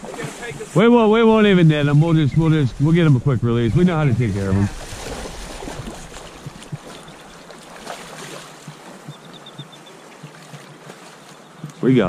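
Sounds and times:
river current rushing and lapping: 0.0s - 12.0s
fish splashing at surface: 4.8s - 9.2s.

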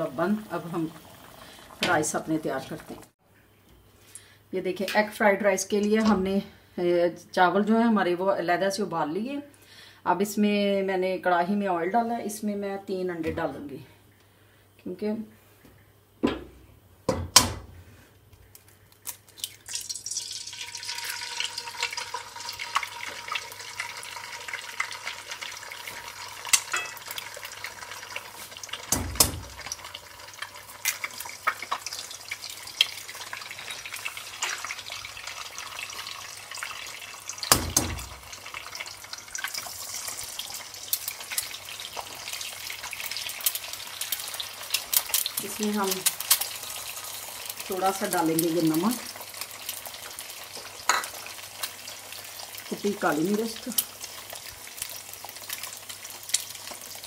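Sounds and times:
eggs sizzling in hot oil: 0.0s - 3.2s, 18.4s - 57.0s
eggs being cracked open: 18.5s - 20.0s.

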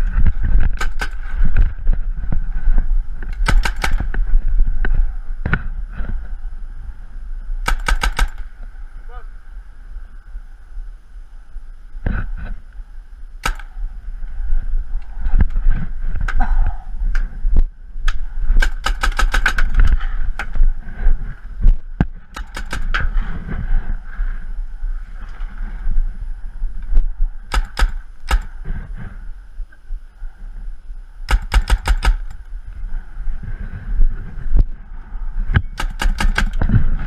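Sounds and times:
low rumble: 0.0s - 37.0s
paintball guns firing: 0.6s - 1.6s, 3.2s - 4.2s, 7.6s - 8.6s, 13.4s - 13.8s, 18.0s - 20.6s, 22.3s - 23.2s, 27.5s - 28.7s, 31.3s - 32.4s, 35.8s - 36.9s.

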